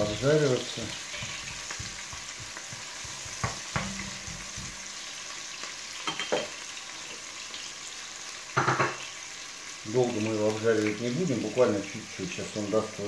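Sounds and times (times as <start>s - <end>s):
onion sizzling in oil: 0.0s - 13.0s
spatula clattering down: 1.0s - 5.0s
spatula knocking on pot: 1.1s - 5.0s.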